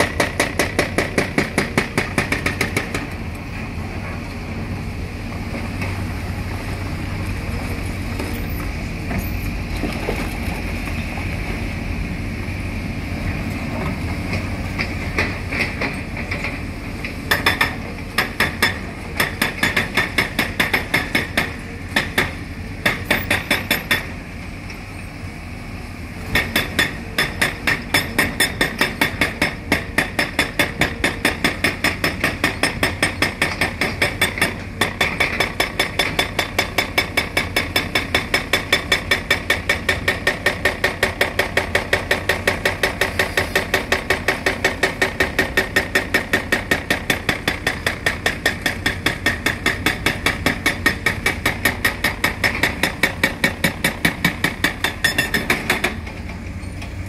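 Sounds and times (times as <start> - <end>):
hydraulic hammer breaking concrete: 26.4 - 56.1.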